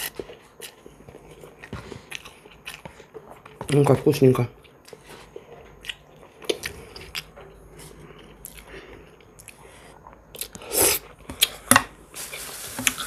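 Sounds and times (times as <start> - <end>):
woman chewing noodles: 4.6 - 11.6.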